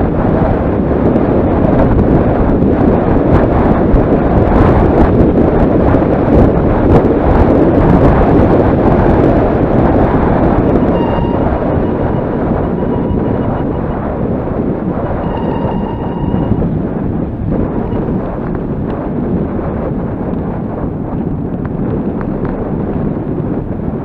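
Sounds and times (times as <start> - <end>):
wind buffeting microphone: 0.0 - 24.0
faint thin whine: 10.5 - 14.3, 14.9 - 16.7.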